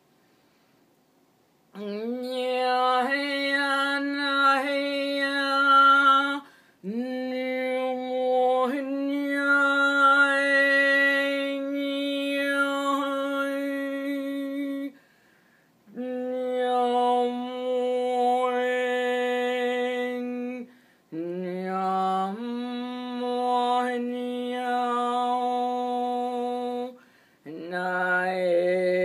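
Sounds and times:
breath: 0.2 - 0.8, 6.4 - 6.8, 15.0 - 15.8, 20.7 - 21.1, 27.0 - 27.5.

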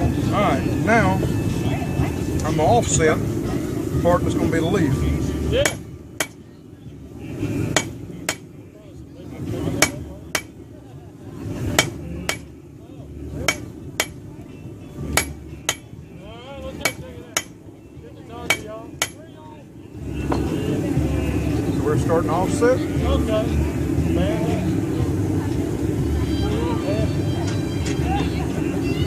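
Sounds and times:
hammer striking steel on anvil: 5.6 - 6.4, 7.7 - 8.5, 9.8 - 10.6, 11.7 - 12.5, 13.4 - 14.3, 15.1 - 15.9, 16.8 - 17.6, 18.5 - 19.2.

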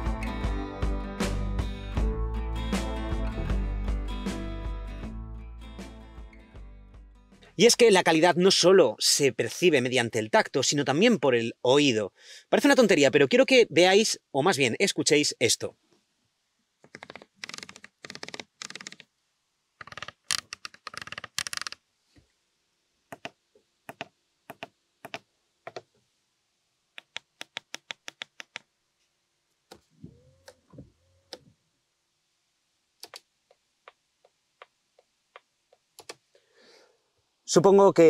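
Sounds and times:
evenly spaced ticks: 16.9 - 19.1, 19.8 - 21.8, 23.1 - 25.8, 27.0 - 28.7.

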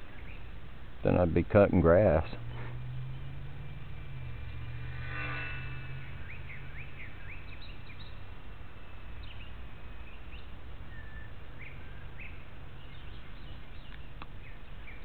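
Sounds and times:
steady low rumble: 0.0 - 9.1
birds chirping: 0.0 - 15.0.

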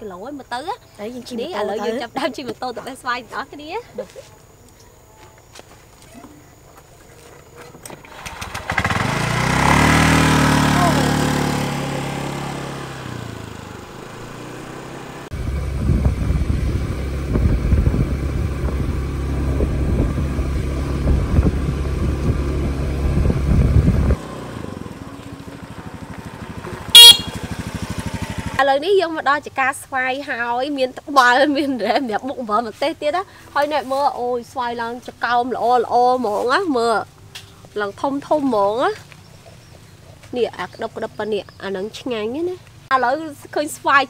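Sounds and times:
scooter engine: 7.8 - 28.9.

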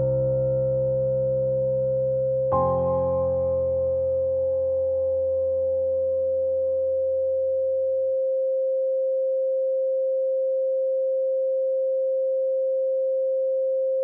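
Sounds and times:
soft low drone: 0.0 - 8.3.

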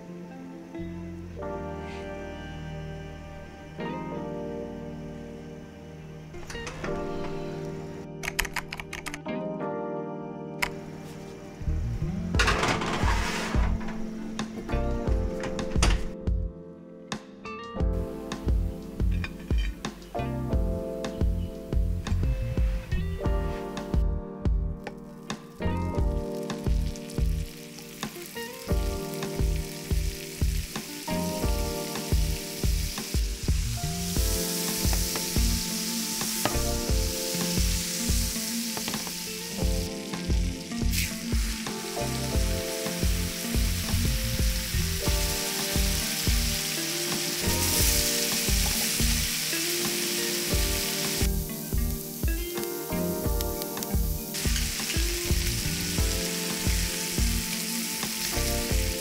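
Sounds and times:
background music with beat: 13.6 - 59.0
butter sizzling in a pan: 26.1 - 59.0.

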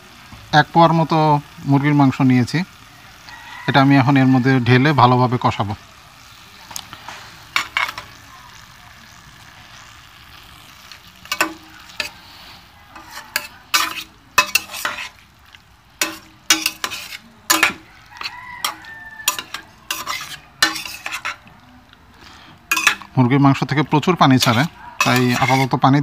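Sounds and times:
chicken sizzling in hot oil: 0.0 - 26.0
metal spatula scraping a pot: 7.0 - 8.2, 10.7 - 21.6, 22.6 - 23.2, 24.3 - 26.0.

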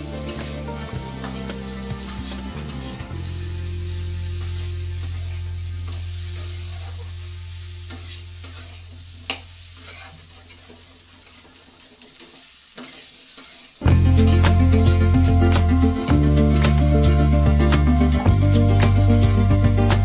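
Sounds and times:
curry sizzling in a pan: 0.0 - 20.0
metal spatula scraping a pan: 7.9 - 18.2.

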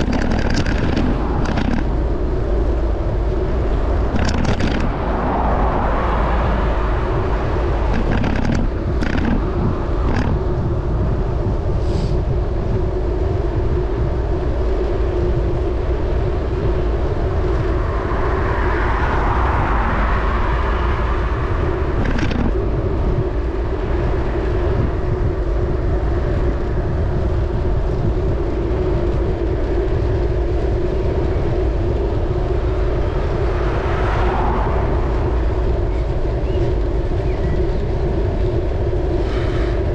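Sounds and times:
cars passing whoosh: 0.0 - 12.1, 15.9 - 26.8, 31.7 - 37.3
wind and road rumble: 0.0 - 39.9.

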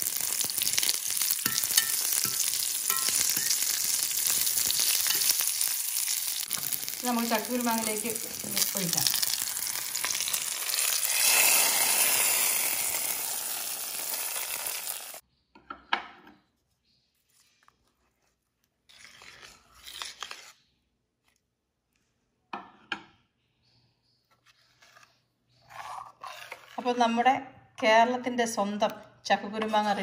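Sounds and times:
hot oil sizzling: 0.0 - 15.2
ladle scraping and knocking pot: 25.6 - 27.0.

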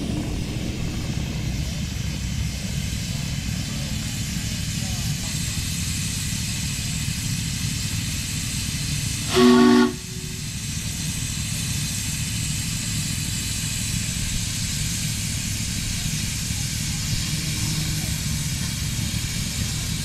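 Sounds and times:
miniature train rail noise: 1.7 - 20.0
train whistle blast: 9.2 - 10.4.

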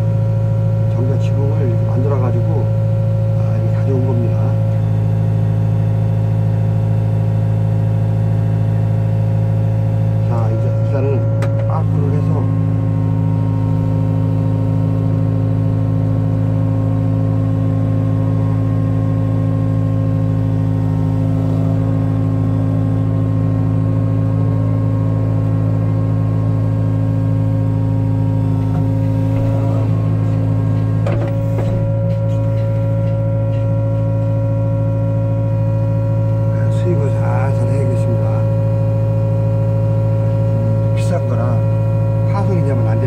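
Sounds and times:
diesel engine running: 0.0 - 43.0
brief knock: 31.0 - 33.7.

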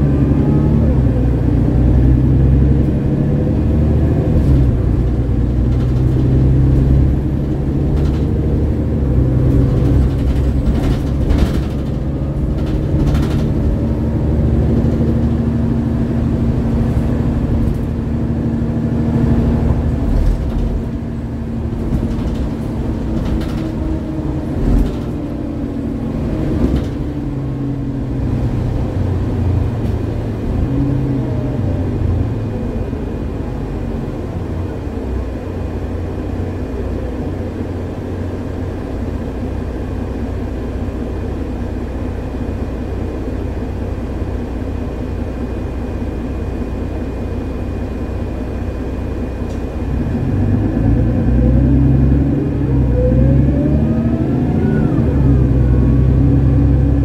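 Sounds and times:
engine whine rising in pitch: 0.0 - 5.4, 49.8 - 57.0
bus diesel engine running: 0.0 - 57.0.

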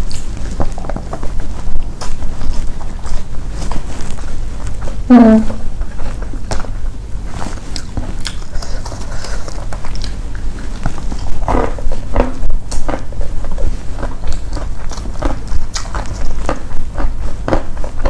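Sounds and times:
crunchy chewing: 0.0 - 18.0
steady low hum: 0.0 - 18.0.

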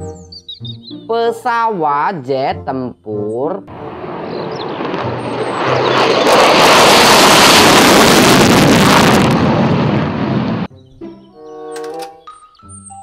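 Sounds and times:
fighter jet taking off: 3.7 - 10.7.

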